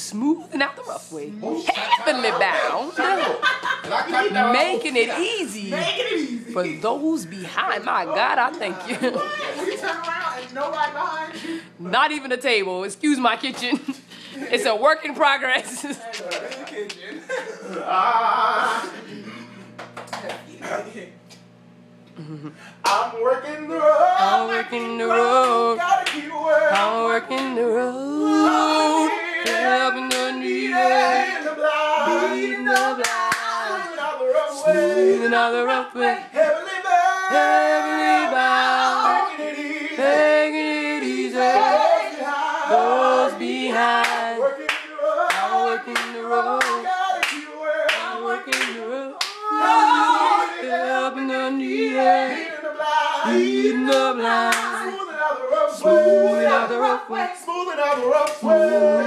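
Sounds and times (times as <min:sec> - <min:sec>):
hand claps: 0:16.1 - 0:17.0, 0:19.8 - 0:20.4, 0:22.8 - 0:23.0, 0:25.4 - 0:27.6, 0:29.4 - 0:30.3, 0:32.7 - 0:33.6, 0:44.0 - 0:49.4, 0:53.9 - 0:54.7, 0:58.2 - 0:58.5
gospel choir singing a cappella: 0:23.4 - 0:59.0.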